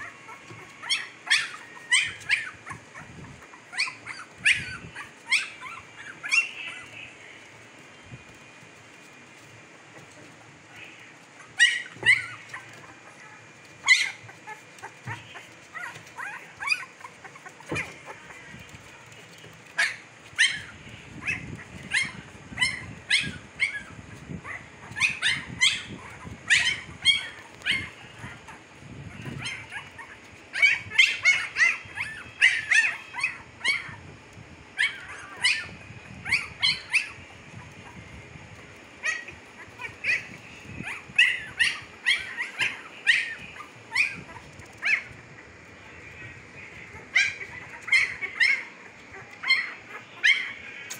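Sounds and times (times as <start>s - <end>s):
puppies whimpering and squealing: 0.0s - 50.9s.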